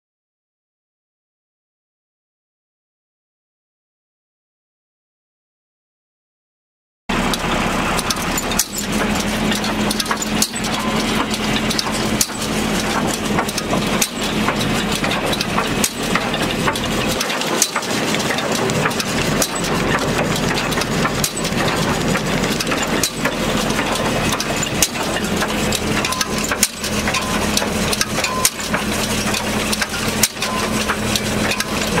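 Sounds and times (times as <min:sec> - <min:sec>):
tractor engine running: 0:07.1 - 0:32.0.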